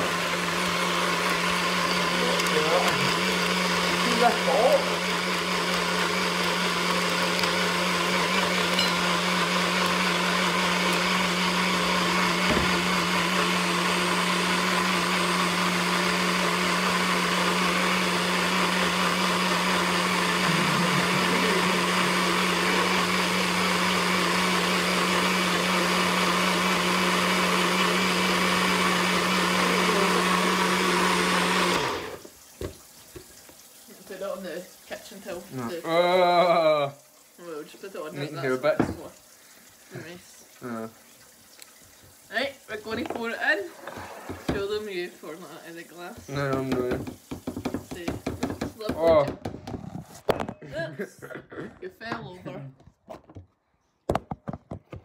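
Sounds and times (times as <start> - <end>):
blender motor running: 0.0 - 32.3, 42.3 - 49.4.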